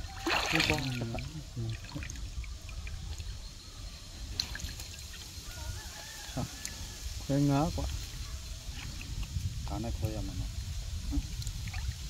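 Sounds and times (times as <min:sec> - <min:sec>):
small splashes: 0:00.0 - 0:03.4, 0:04.3 - 0:05.6, 0:11.1 - 0:12.0
wet net handled in water: 0:00.0 - 0:03.7, 0:04.3 - 0:06.8, 0:11.0 - 0:12.0
water trickling and dripping: 0:00.0 - 0:06.9, 0:07.5 - 0:12.0.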